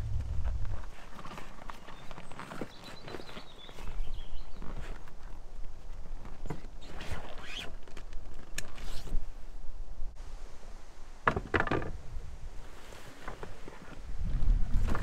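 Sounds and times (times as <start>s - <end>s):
paddle knocking aluminium canoe: 11.2s - 12.0s.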